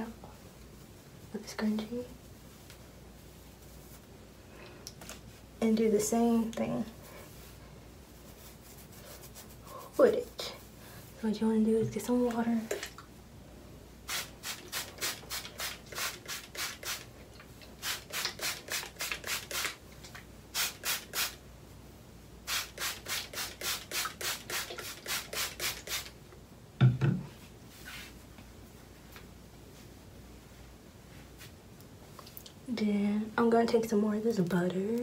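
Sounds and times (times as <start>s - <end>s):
hairbrush scratching through hair: 8.2s - 10.4s.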